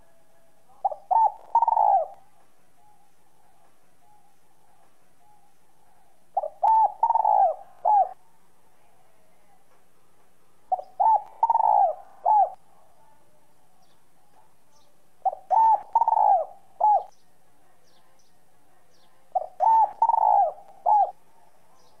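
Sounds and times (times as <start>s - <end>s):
dove cooing: 0.7s - 8.2s, 10.7s - 12.7s, 15.2s - 17.2s, 19.3s - 21.2s.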